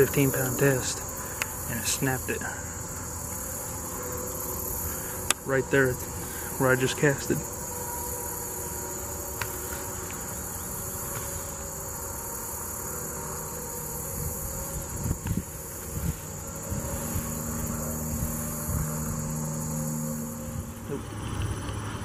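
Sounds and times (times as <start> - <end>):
insects chorus: 0.0 - 22.0
low hum: 0.0 - 22.0.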